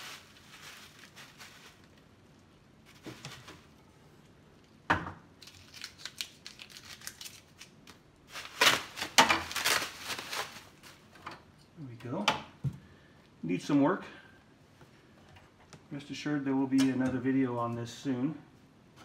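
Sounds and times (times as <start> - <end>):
plastic bag crinkling: 0.0 - 3.8, 5.4 - 11.2.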